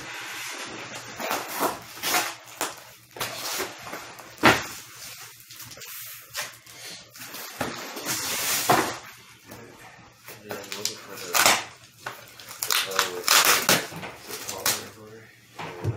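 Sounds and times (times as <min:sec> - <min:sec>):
cardboard scraping and rustling: 0:00.0 - 0:02.6.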